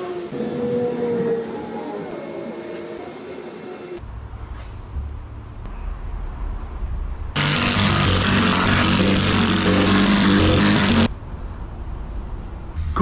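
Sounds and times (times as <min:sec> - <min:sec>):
power tool cutting wood: 0:07.4 - 0:11.1.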